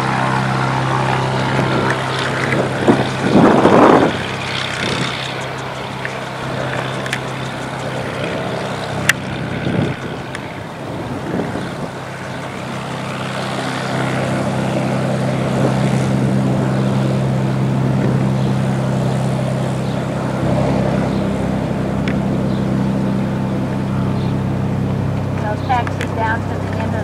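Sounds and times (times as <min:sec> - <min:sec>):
propeller plane engine droning: 0:00.0 - 0:27.0.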